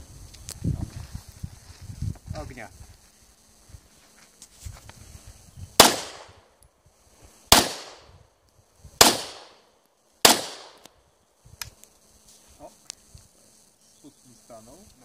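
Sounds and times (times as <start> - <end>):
pistol shots with echo: 5.8 - 6.3, 7.5 - 8.0, 9.0 - 9.6, 10.2 - 10.8.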